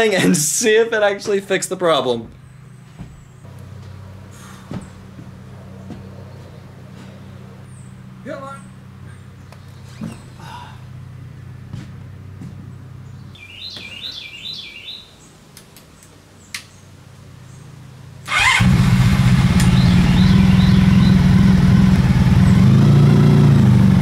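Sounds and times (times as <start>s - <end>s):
bird chirping: 2.2s - 10.6s, 12.7s - 17.8s, 19.4s - 22.8s
motorcycle engine running: 18.3s - 24.0s.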